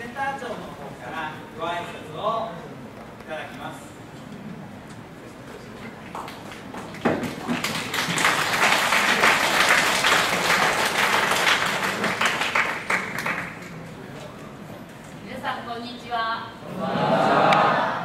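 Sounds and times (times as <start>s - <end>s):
audience applauding: 6.1s - 13.8s.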